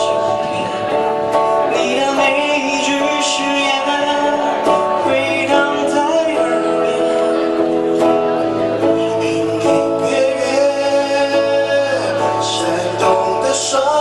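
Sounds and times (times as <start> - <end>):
electric guitar: 0.0 - 14.0
man singing into a microphone: 0.0 - 14.0.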